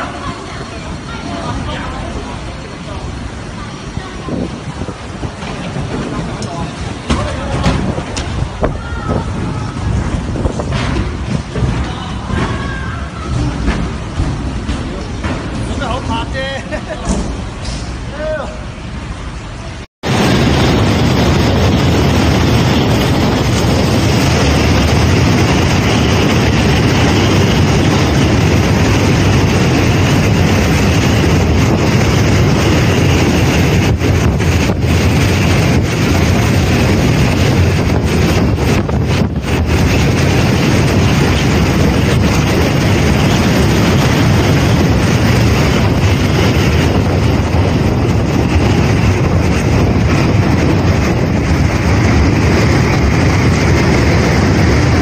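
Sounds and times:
strong wind blowing: 0:00.0 - 0:55.0
driving rain: 0:18.6 - 0:55.0.

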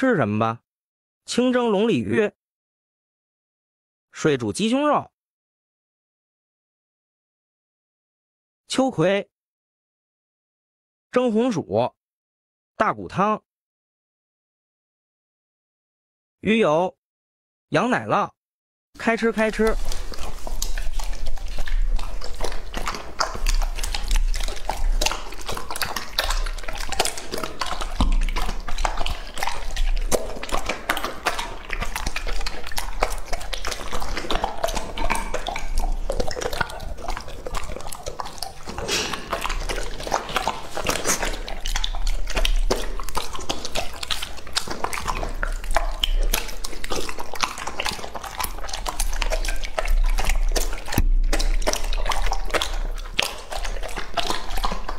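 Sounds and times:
dog chewing wet food: 0:19.0 - 0:54.9.

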